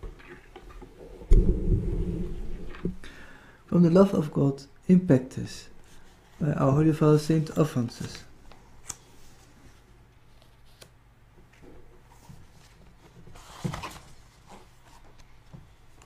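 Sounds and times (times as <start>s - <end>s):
faint room hum: 0.0s - 16.0s
paper rustling: 12.1s - 15.4s.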